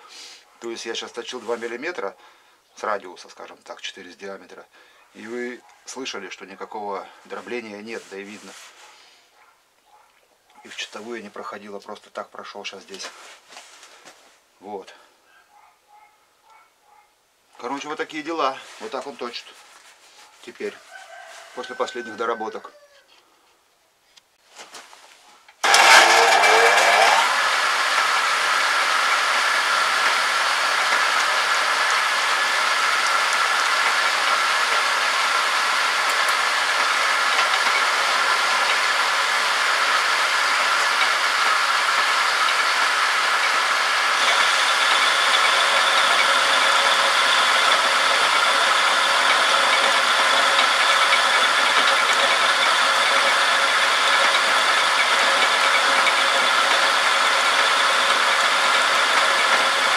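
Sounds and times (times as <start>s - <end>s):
lathe whining and rattling: 25.6s - 59.9s.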